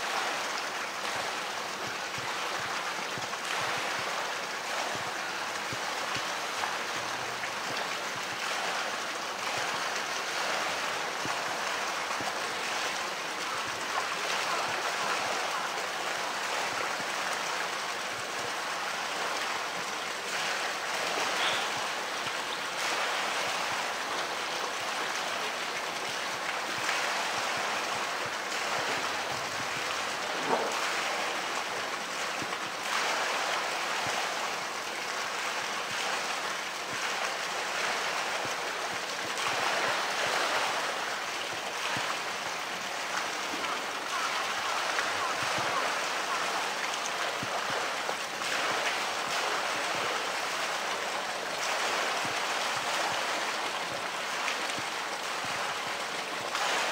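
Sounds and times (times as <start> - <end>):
water sloshing and splashing: 0.0 - 56.9
sharp splashes: 18.1 - 56.9.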